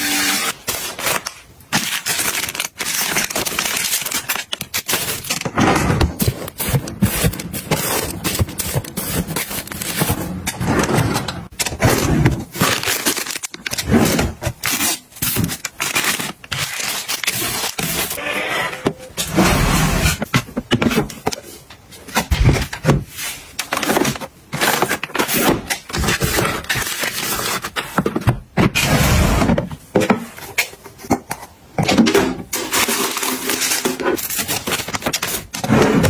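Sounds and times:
plastic wrapping crinkling: 0.6 - 5.5, 12.4 - 18.2.

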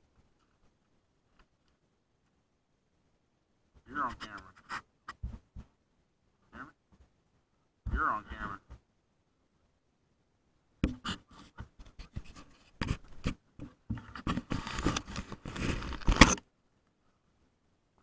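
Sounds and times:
camera handling noise: 14.2 - 16.4.

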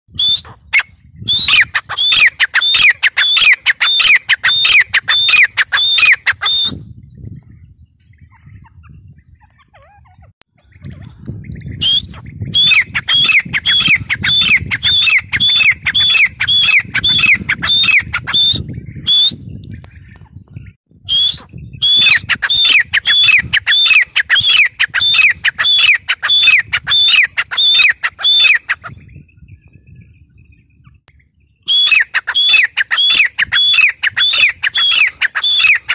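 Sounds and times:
bird calling rapid repeated notes: 0.1 - 6.8, 11.8 - 19.3, 21.1 - 29.1, 31.7 - 35.9.

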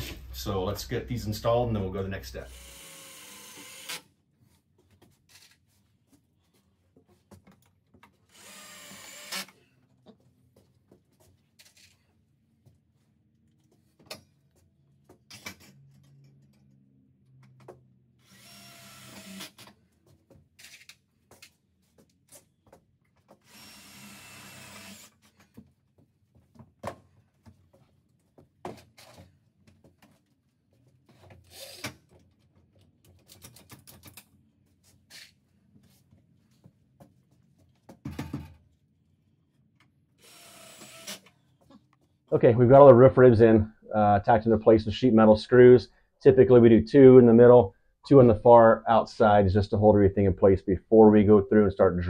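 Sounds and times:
cordless drill driving screws: 2.5 - 4.0, 8.3 - 9.6, 18.2 - 19.6, 23.4 - 25.2, 40.2 - 41.3
clicks and knocks of metal parts: 32.1 - 34.3.

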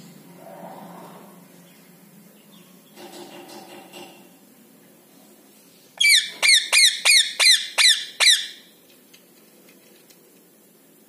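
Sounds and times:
parakeet high-pitched calls: 6.0 - 8.7.

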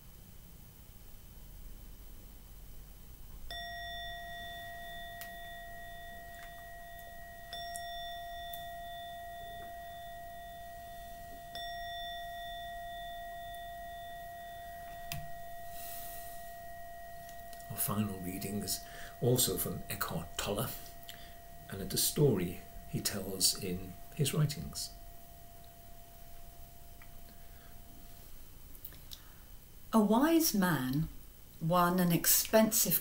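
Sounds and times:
meditation bell ringing: 3.5 - 28.6.

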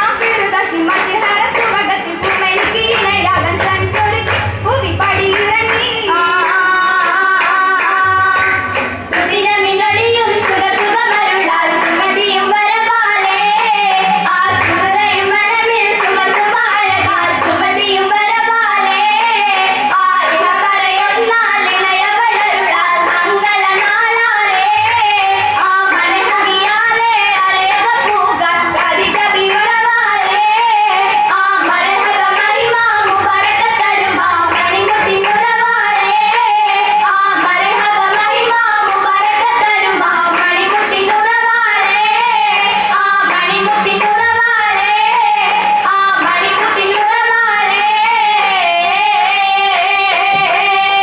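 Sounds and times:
girls singing through pa system: 0.0 - 51.0
rhythmic handclaps: 0.0 - 51.0.

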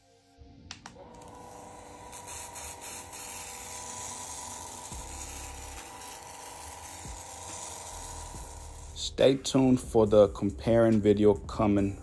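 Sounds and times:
small electric motor humming: 1.0 - 9.4.

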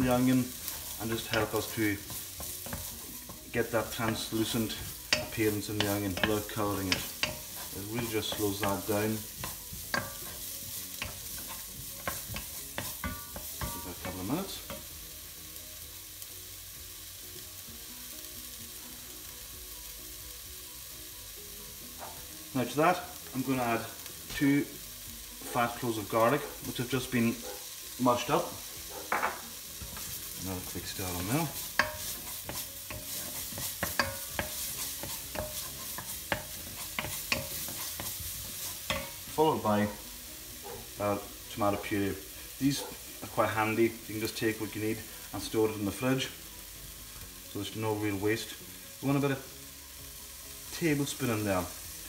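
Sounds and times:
wooden spoon scraping a pot: 0.0 - 14.8, 29.0 - 40.0
onion sizzling in oil: 0.0 - 52.0
soft background music: 0.0 - 52.0.

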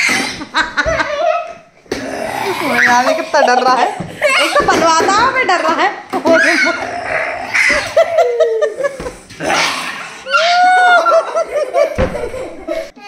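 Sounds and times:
people laughing: 0.4 - 1.6, 2.6 - 6.9, 7.6 - 9.4, 10.6 - 13.0.

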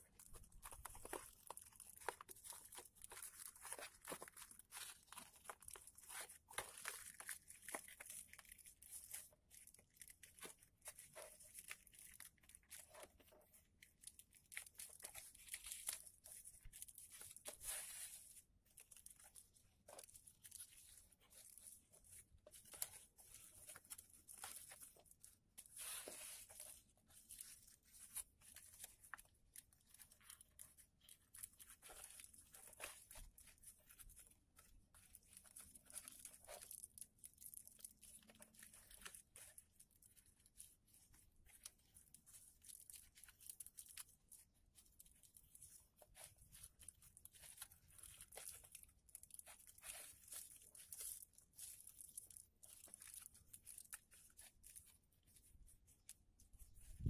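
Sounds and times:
paper rustling and crinkling: 0.0 - 57.0.

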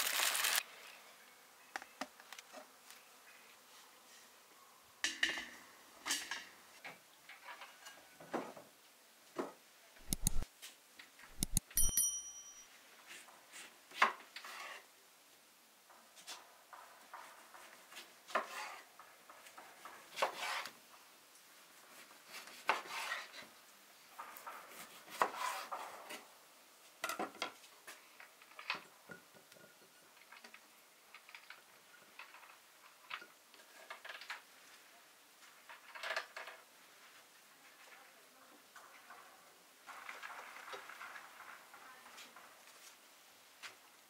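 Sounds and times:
glass dishes clinking: 11.7 - 12.7.

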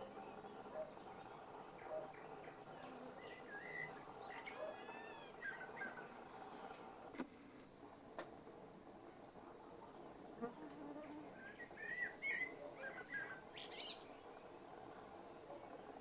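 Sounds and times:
blackbird singing: 0.2 - 6.1, 11.4 - 14.2.

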